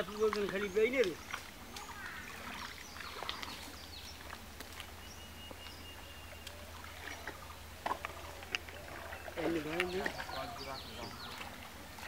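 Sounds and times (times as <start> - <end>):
faint water splashes: 0.0 - 12.0
bird chirps: 5.0 - 7.6.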